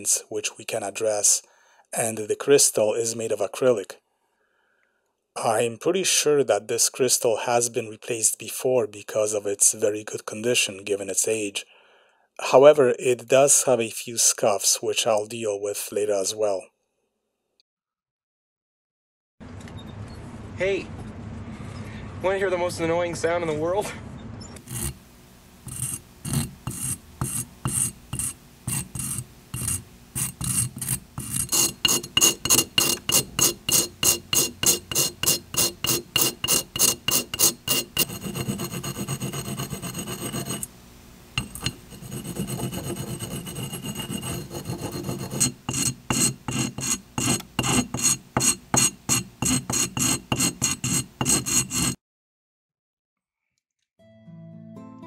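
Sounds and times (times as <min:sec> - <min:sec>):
metal rasping on sandpaper: 0:24.6 - 0:25.0, 0:25.6 - 0:40.7, 0:41.4 - 0:52.0.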